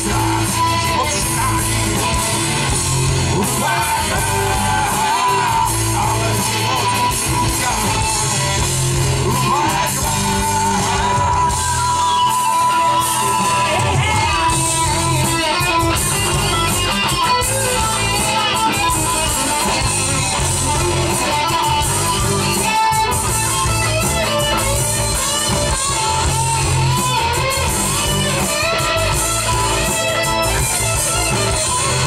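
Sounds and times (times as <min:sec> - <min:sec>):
electric guitar: 0:00.0 - 0:32.0
live band playing pop-rock: 0:00.0 - 0:32.0.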